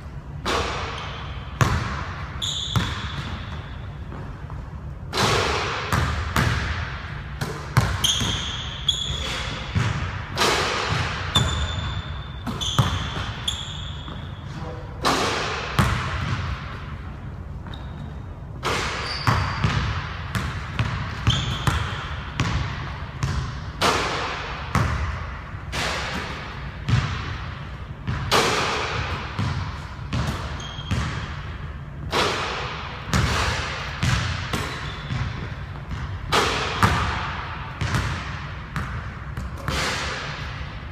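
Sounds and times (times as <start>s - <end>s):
sneaker squeaks: 0.5s - 5.4s, 7.4s - 10.1s, 10.8s - 22.6s, 28.1s - 31.7s, 33.1s - 37.2s
basketball bouncing on hardwood floor: 9.2s - 10.1s, 19.2s - 23.6s, 26.9s - 27.3s, 29.0s - 31.4s, 33.1s - 39.8s.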